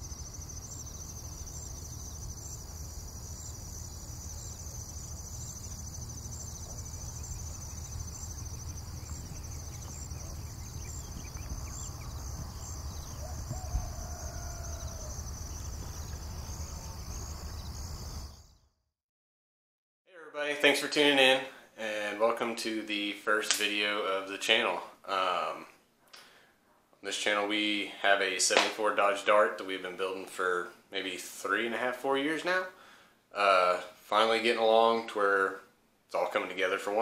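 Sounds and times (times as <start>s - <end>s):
insect chorus: 0.0s - 18.6s.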